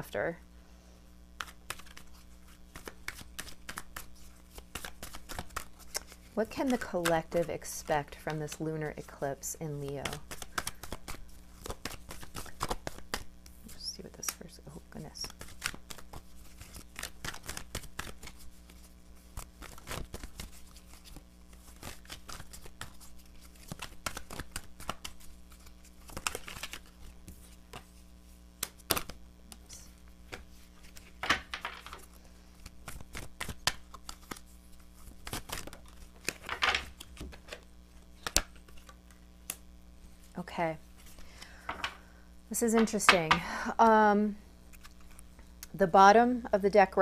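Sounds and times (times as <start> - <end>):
cards riffling: 1.4 - 7.4, 10.0 - 14.4, 15.2 - 39.7, 44.6 - 45.4
cards being shuffled: 1.4 - 42.0, 44.6 - 45.4.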